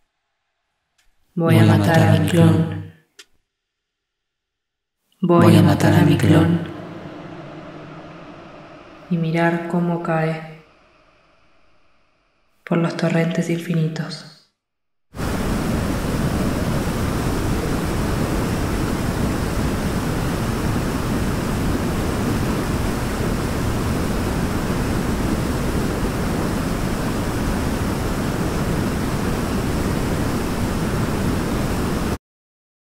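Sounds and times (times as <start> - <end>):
rushing water of a torrent: 15.2 - 32.2.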